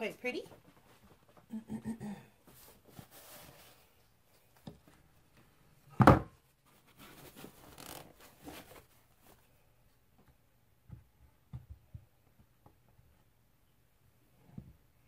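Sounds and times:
soft rubbing and rustling: 0:00.2 - 0:01.5, 0:02.4 - 0:05.6, 0:06.6 - 0:09.7.

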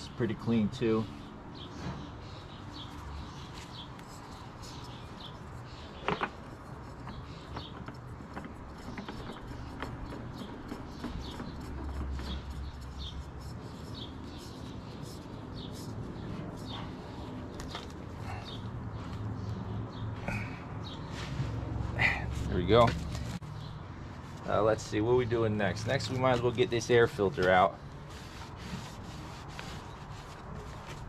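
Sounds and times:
small birds chirping: 0:00.0 - 0:31.0.

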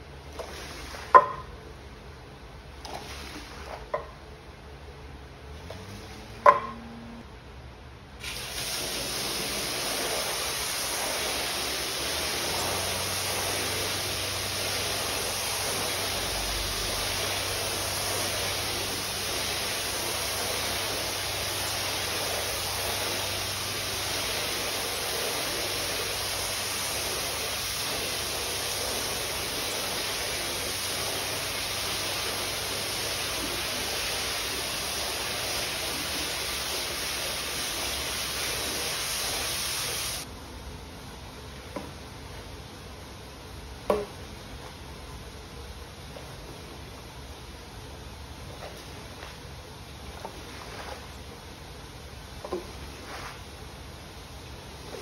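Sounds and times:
water spraying from hose nozzle: 0:08.2 - 0:40.2.

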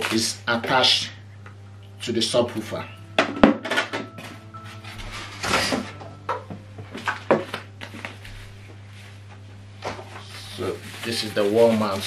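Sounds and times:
low steady hum: 0:00.0 - 0:12.0
packaging rustling: 0:10.1 - 0:12.0.

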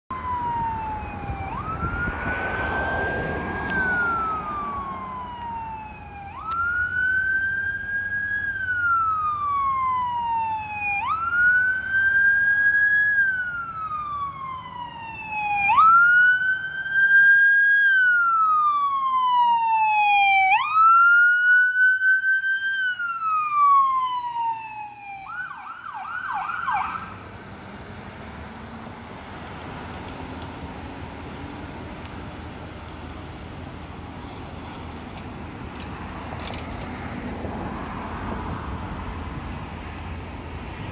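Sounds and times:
ambulance siren wailing and yelping: 0:00.1 - 0:27.8.

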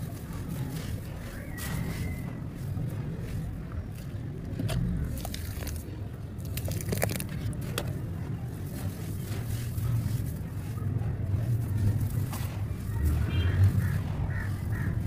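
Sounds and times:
hands squishing wet slurry: 0:03.1 - 0:08.0
hands crushing dry dust: 0:04.8 - 0:08.0.

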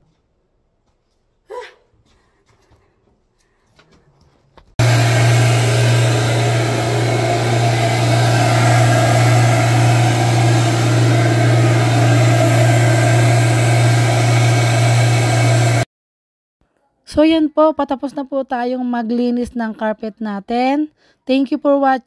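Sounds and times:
carpet extractor vacuum motor: 0:04.8 - 0:15.8.

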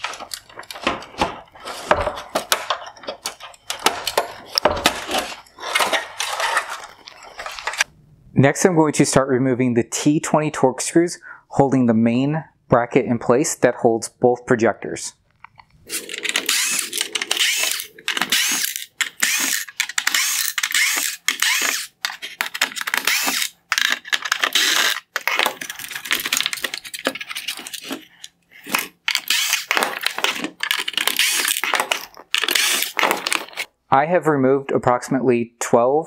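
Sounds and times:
cordless screwdriver bursts: 0:16.3 - 0:25.1, 0:29.1 - 0:33.4.

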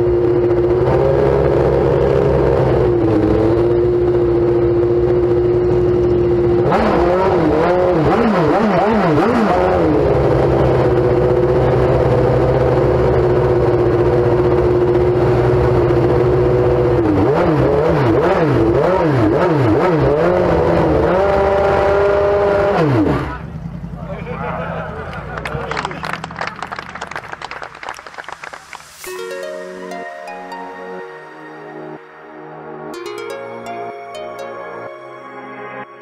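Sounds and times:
racing car engine revving: 0:00.0 - 0:24.0.

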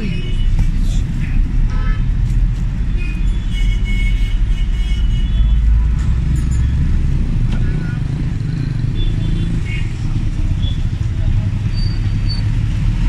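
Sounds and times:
engine rumble and road noise: 0:00.0 - 0:13.0.

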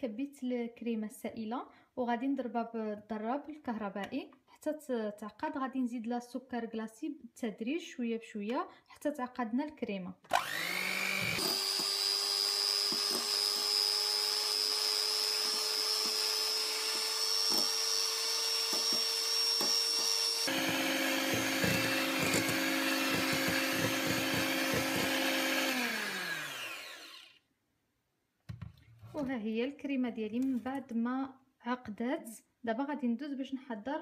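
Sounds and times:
electric hand mixer whining: 0:10.3 - 0:27.4.

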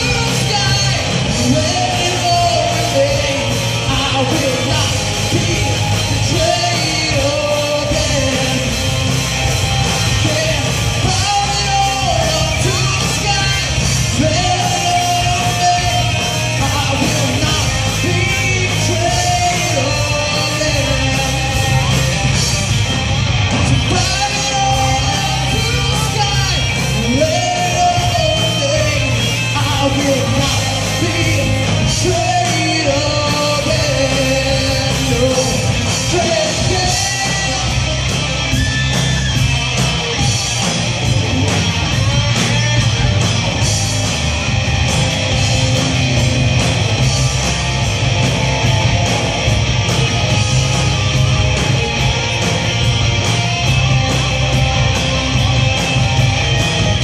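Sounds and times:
man singing: 0:00.0 - 0:09.0, 0:10.0 - 0:21.9, 0:23.6 - 0:38.0
drum kit: 0:00.0 - 0:57.0
electric bass: 0:00.0 - 0:57.0
electric guitars: 0:00.0 - 0:57.0.

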